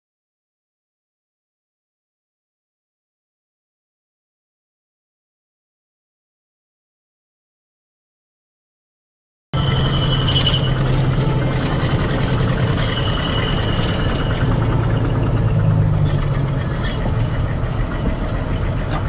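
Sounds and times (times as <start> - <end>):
short high squeals: 9.6 - 17.1
truck diesel engine running: 9.6 - 19.0.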